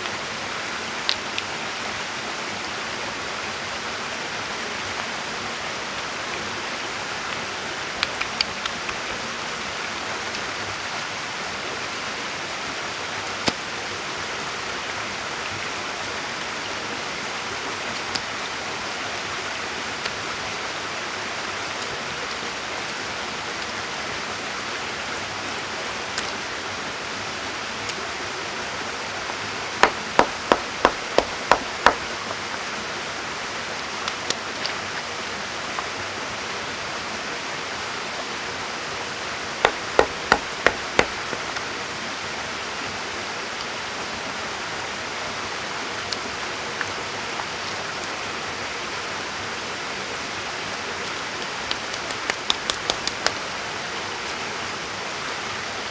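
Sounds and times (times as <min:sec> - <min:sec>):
stream water rushing: 0:00.0 - 0:55.9
sharp clicks: 0:29.8 - 0:32.4, 0:39.6 - 0:41.4.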